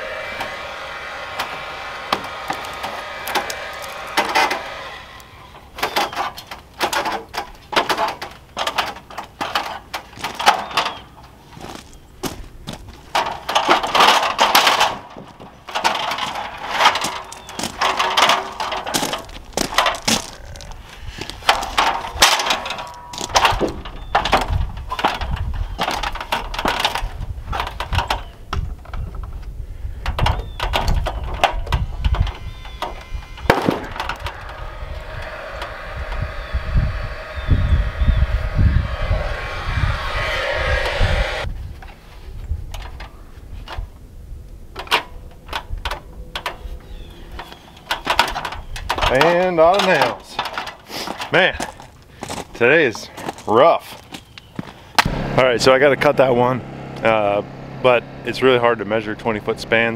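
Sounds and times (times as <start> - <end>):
low rumble: 0.0 - 6.0, 31.0 - 41.9.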